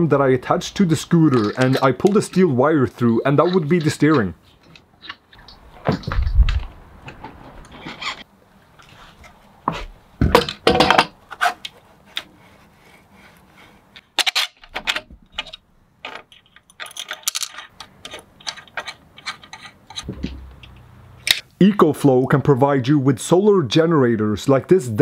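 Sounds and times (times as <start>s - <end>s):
small parts and tools clinking: 1.0s - 6.4s, 14.0s - 21.4s.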